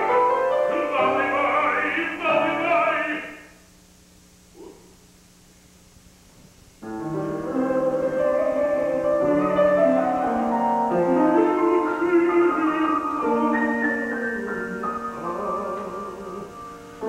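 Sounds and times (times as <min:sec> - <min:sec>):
piano accompaniment: 0:00.0 - 0:03.3, 0:06.8 - 0:17.0
baritone voice singing: 0:00.1 - 0:03.5, 0:10.9 - 0:16.7.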